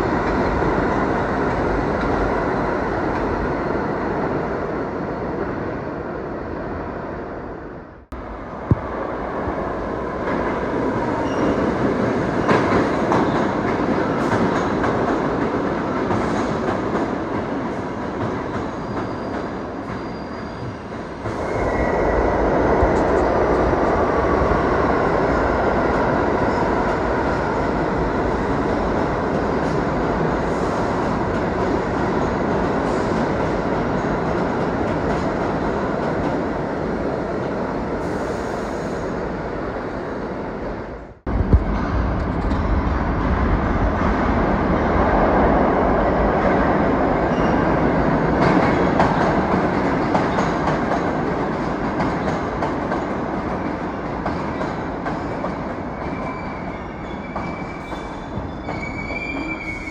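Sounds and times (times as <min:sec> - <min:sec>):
subway train rumbling: 0:00.0 - 0:59.9
high wheel squeal: 0:56.0 - 0:59.9.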